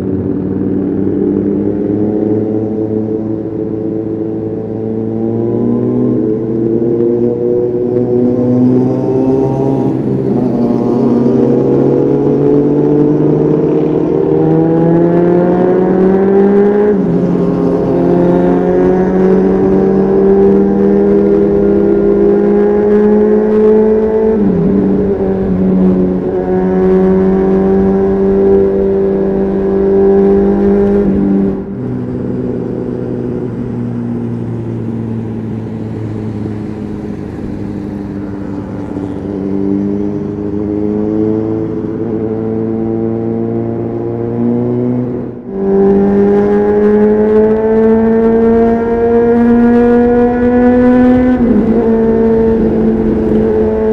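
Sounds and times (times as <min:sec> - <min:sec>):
motorcycle engine revving: 0:00.0 - 0:53.9.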